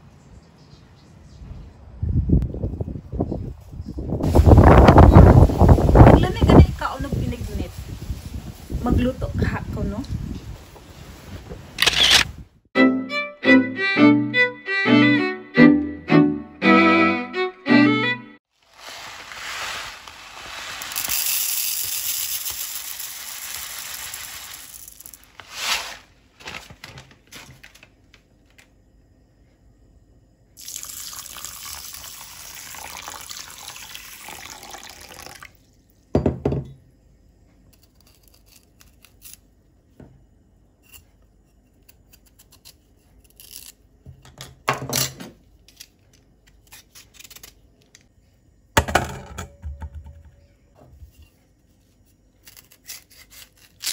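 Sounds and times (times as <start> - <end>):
dry pearls poured into bowl: 18.6 - 26.0, 30.6 - 35.4
water pouring: 30.6 - 35.7
knock on counter: 36.2 - 36.8
peeler scraping sweet potato: 40.8 - 43.8, 52.4 - 53.9.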